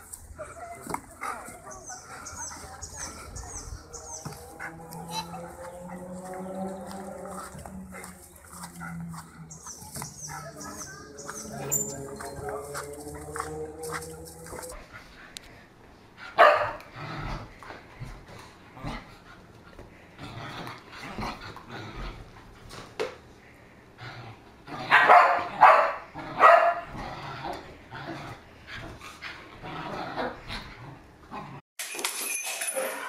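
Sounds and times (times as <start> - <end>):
dogs barking: 0.6 - 14.8, 16.4 - 16.9, 24.8 - 27.0.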